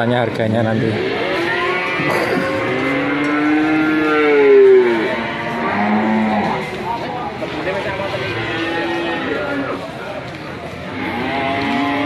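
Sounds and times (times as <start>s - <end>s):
cattle mooing: 0.9s - 6.8s, 8.2s - 9.8s, 10.9s - 12.0s.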